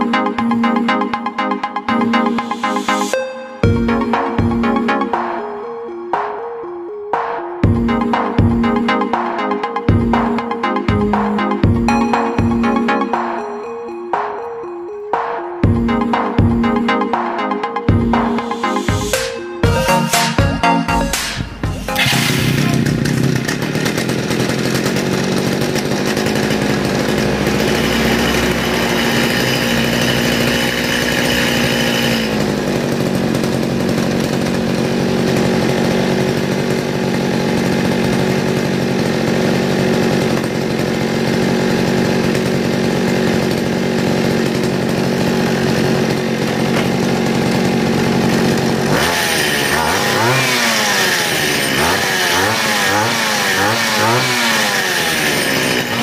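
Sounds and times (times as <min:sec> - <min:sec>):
grass trimmer engine revving: 0:08.0 - 0:12.1, 0:21.8 - 0:56.0.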